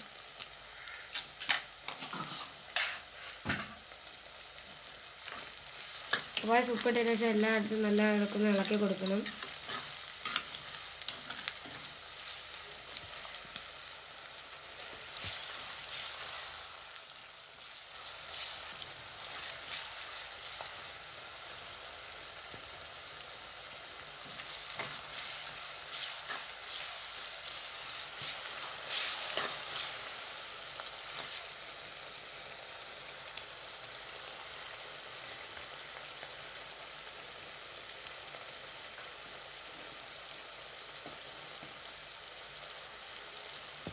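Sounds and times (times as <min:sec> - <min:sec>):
onions sizzling in oil: 0:00.0 - 0:43.9
spoon stirring and scraping pot: 0:01.4 - 0:03.4, 0:09.2 - 0:12.6, 0:24.3 - 0:30.1.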